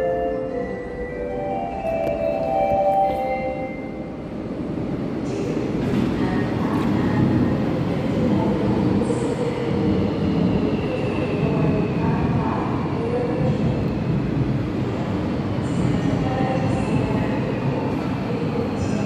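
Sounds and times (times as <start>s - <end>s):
station arrival chime: 0.0s - 4.2s.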